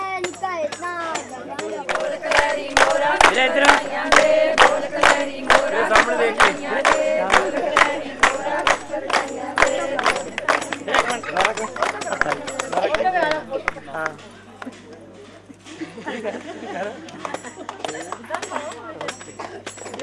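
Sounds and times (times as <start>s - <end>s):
steady hand clapping: 0.1s - 15.0s, 16.4s - 20.0s
women singing together: 1.6s - 13.8s.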